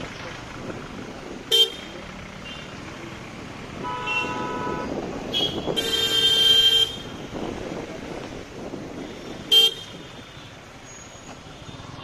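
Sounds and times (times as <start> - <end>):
idling traffic: 0.0 - 12.0
vehicle horns honking: 1.5 - 2.8, 3.8 - 7.2, 9.0 - 10.5.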